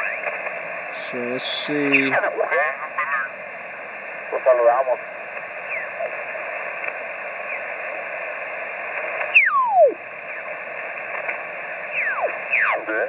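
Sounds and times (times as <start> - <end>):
radio static hiss: 0.0 - 9.2.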